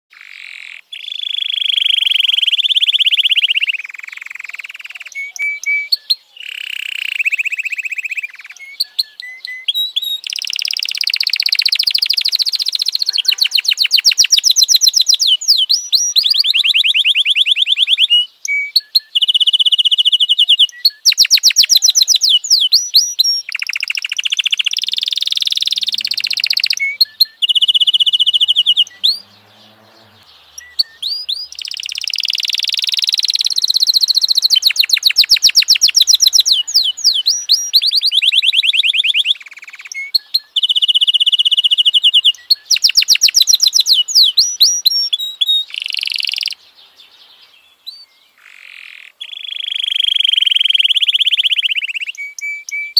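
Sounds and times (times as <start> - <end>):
canary singing: 0.1 - 52.9.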